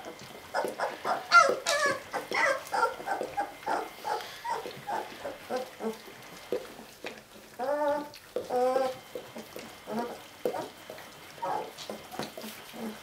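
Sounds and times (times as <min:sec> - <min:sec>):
puppies squealing and whimpering: 0:00.0 - 0:13.0.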